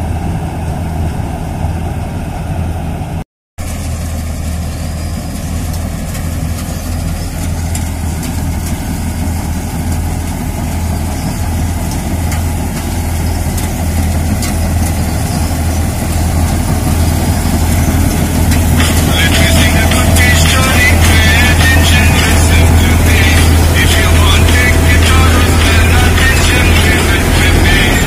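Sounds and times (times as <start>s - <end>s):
combine harvester engine humming: 0.0s - 28.0s.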